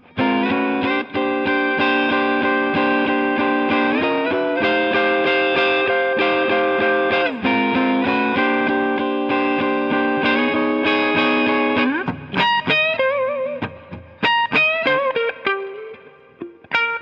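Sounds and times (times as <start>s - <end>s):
fingerpicked blues electric guitar: 0.0s - 17.0s.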